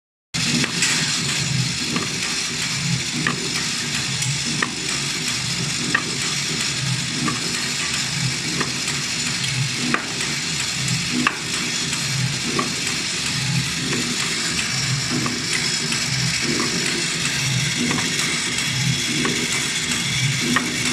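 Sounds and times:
machine rattling hiss: 0:00.4 - 0:20.9
low pulsing rumble: 0:10.5 - 0:20.9.

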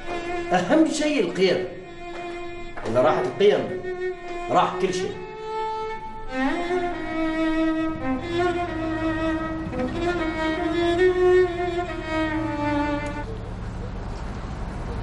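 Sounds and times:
bowed strings slow melody: 0:00.0 - 0:13.6
low steady rumble: 0:05.8 - 0:15.0.

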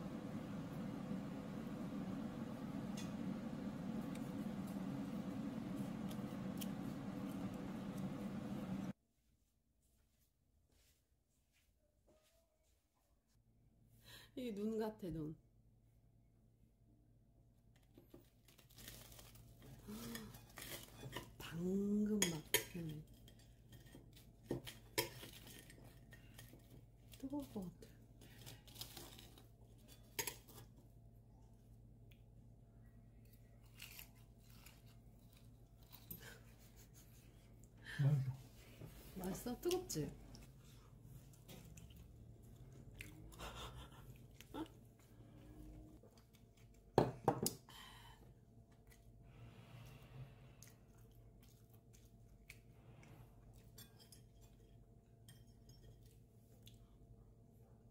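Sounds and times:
low hum: 0:00.0 - 0:09.0.

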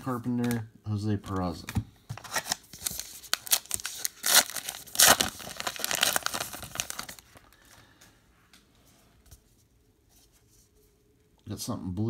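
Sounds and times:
wrapper crinkling: 0:02.2 - 0:07.6
wrapper ripping: 0:02.3 - 0:07.4.

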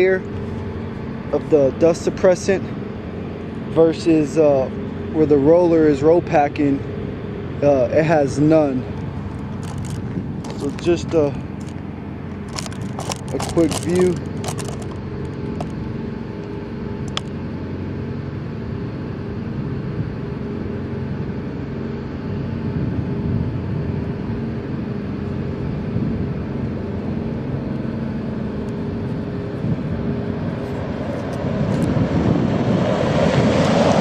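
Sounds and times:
truck engines humming: 0:00.0 - 0:18.3
tyres on gravel: 0:08.7 - 0:15.9.

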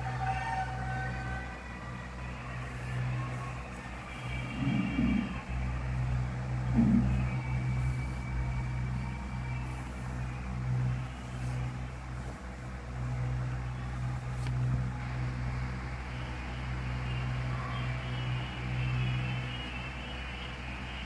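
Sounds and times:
cat purring: 0:06.6 - 0:10.1.

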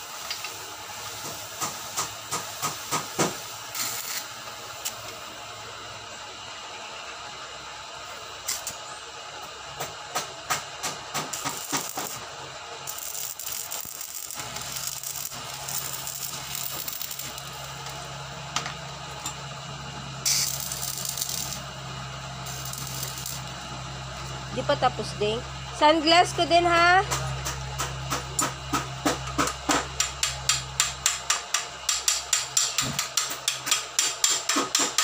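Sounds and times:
welding arc crackling: 0:00.0 - 0:05.4, 0:08.4 - 0:08.8, 0:10.2 - 0:25.2
low steady hum: 0:03.7 - 0:31.2.

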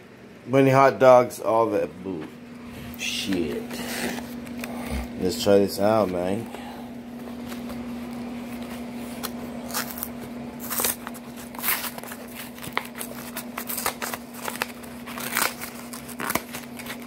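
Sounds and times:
steady low hum: 0:00.0 - 0:17.0
cardboard carton being torn open: 0:09.2 - 0:17.0.

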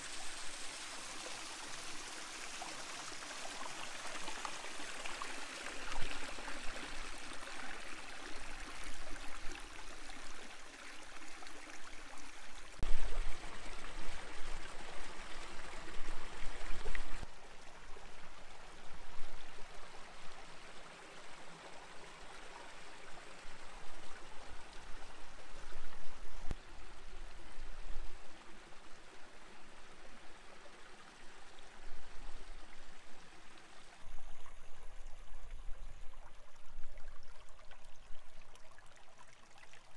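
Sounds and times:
stream trickling over rocks: 0:00.0 - 0:39.9.

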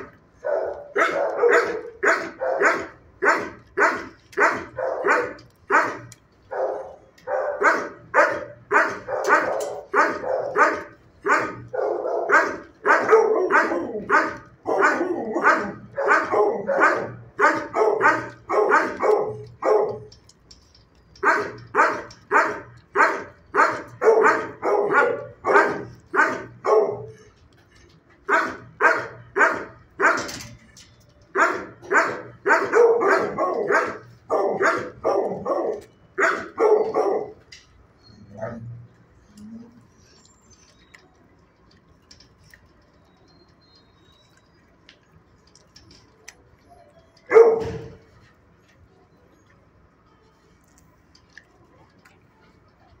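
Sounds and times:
dog barking: 0:00.4 - 0:20.1, 0:21.2 - 0:27.2, 0:28.3 - 0:30.4, 0:31.4 - 0:37.4, 0:47.3 - 0:48.0.

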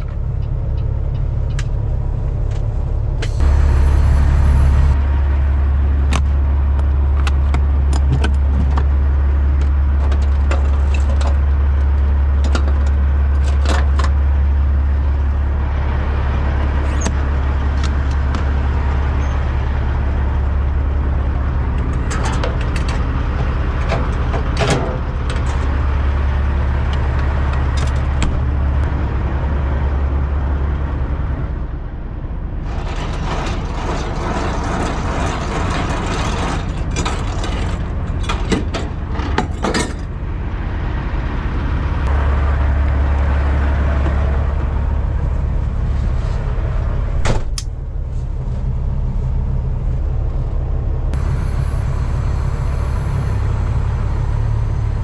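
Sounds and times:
diesel truck engine droning: 0:00.0 - 0:55.0
clicks and rattles: 0:06.1 - 0:14.2, 0:21.7 - 0:25.8, 0:32.6 - 0:40.1.

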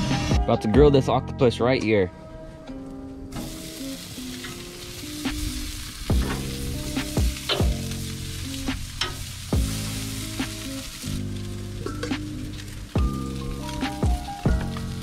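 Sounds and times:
background music with bass beat: 0:00.0 - 0:15.0
food sizzling on a grill: 0:03.3 - 0:15.0.

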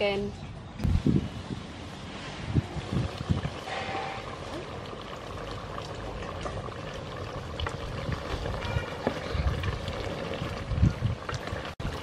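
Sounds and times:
curry bubbling in a pot: 0:02.6 - 0:12.0.

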